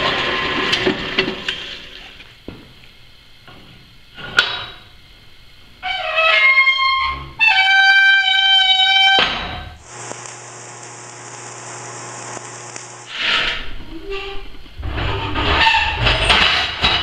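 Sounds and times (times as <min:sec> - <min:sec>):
welder hissing and humming: 0:08.8 - 0:13.8.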